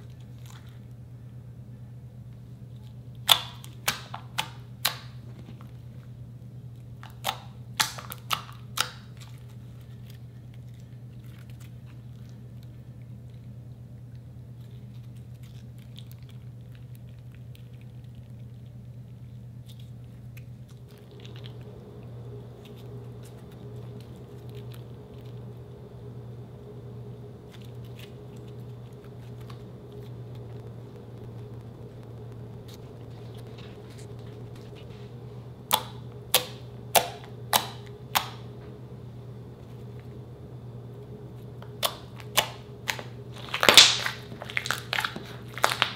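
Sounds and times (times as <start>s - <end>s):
slime squishing: 0.0s - 1.2s, 2.4s - 26.3s, 27.0s - 38.8s, 41.0s - 45.9s
low hum: 0.0s - 45.9s
slime popping: 35.6s - 38.5s, 41.6s - 45.9s.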